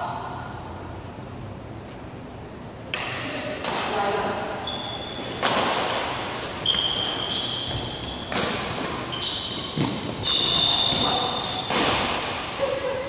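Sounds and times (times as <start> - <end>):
badminton racket hitting shuttlecock: 2.9 - 4.2, 5.4 - 9.1, 9.7 - 12.5
high squeaks: 4.6 - 6.0, 6.6 - 11.8.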